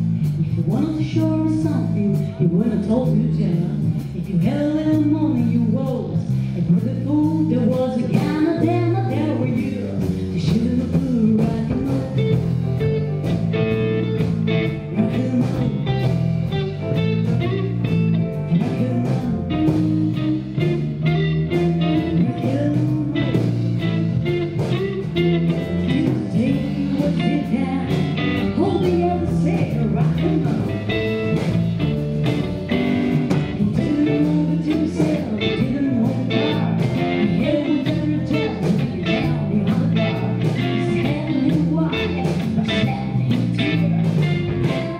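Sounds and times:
blues band playing: 0.0 - 44.9
electric guitars: 0.0 - 44.9.

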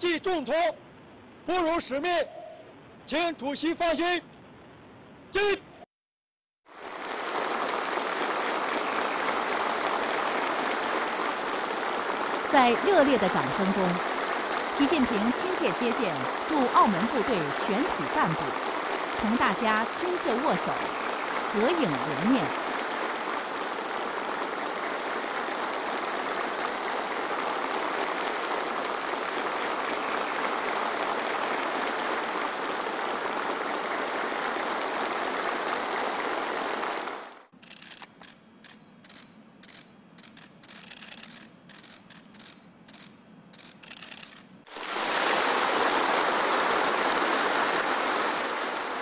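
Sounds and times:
crowd applauding: 6.7 - 38.0, 43.6 - 49.0
scattered clicks: 37.6 - 44.5.

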